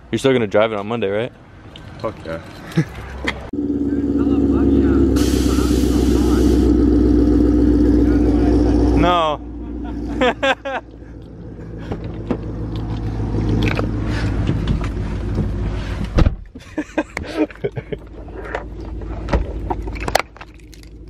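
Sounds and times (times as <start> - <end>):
car engine running: 3.6 - 16.0.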